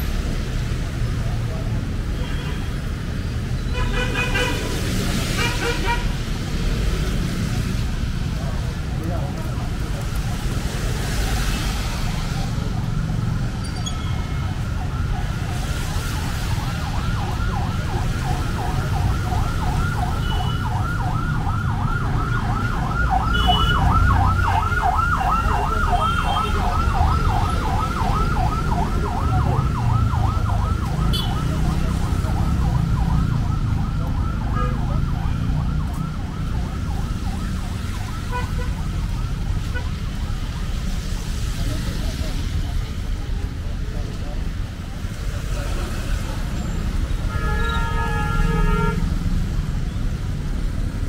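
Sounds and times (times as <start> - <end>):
road traffic rumble: 0.0 - 51.0
siren yelping: 13.8 - 41.4.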